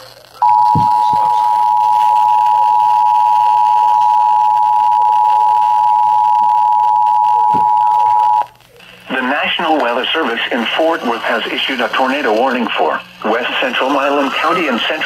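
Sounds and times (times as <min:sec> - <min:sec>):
two-tone alert signal: 0:00.4 - 0:08.4.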